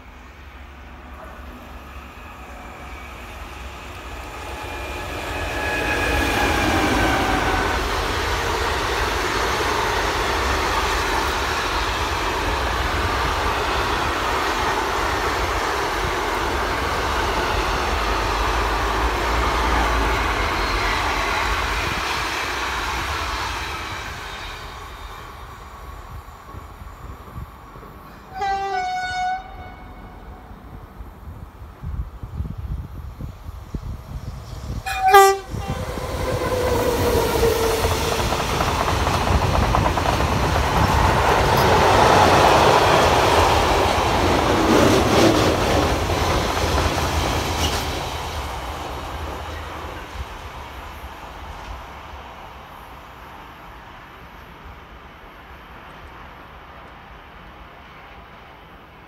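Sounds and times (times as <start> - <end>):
electric locomotive whine: 0.0 - 59.0
train horn: 28.2 - 30.5, 34.8 - 37.8.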